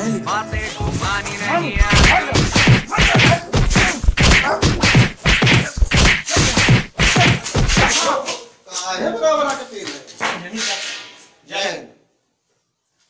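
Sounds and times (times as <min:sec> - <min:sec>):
punches and slaps on a back: 0:01.8 - 0:08.2.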